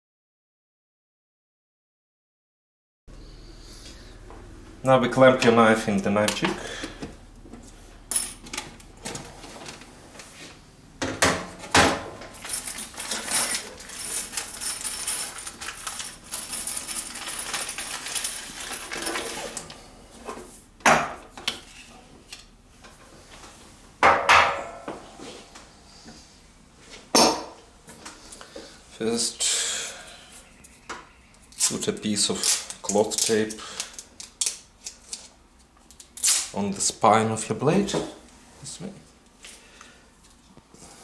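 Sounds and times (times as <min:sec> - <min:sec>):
rustling and scraping: 0:07.0 - 0:10.6, 0:11.6 - 0:20.7, 0:25.0 - 0:27.1.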